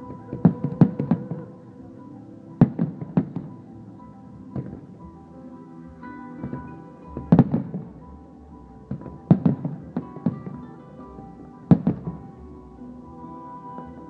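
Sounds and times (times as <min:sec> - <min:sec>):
music: 0:00.0 - 0:14.0.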